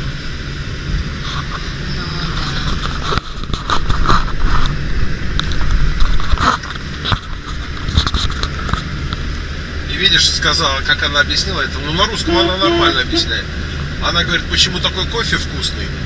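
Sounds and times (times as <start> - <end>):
car engine and tyre rumble: 0.0 - 16.0.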